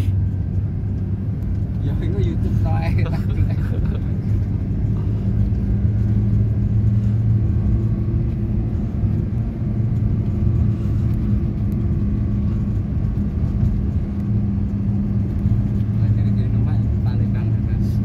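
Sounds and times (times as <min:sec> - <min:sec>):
engine and road rumble in car: 0:00.0 - 0:18.0.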